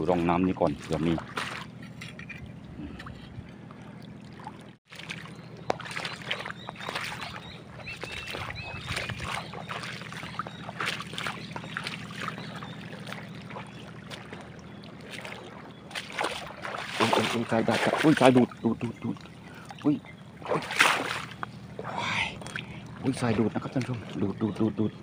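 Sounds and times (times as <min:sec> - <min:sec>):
squelching footsteps on wet mud: 0:00.0 - 0:02.3, 0:03.4 - 0:21.8
boat engine droning: 0:00.0 - 0:25.0.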